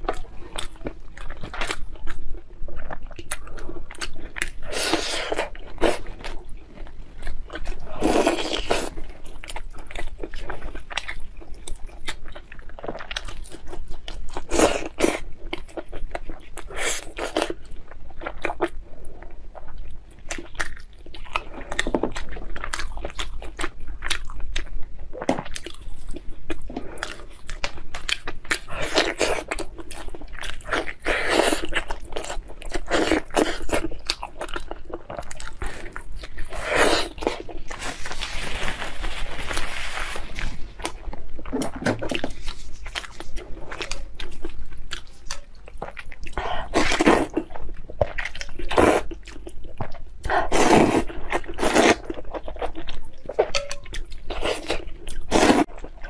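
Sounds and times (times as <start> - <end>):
chewing with wet smacking: 0.0 - 37.8, 40.8 - 56.0
paper tissue rustling: 37.7 - 40.8.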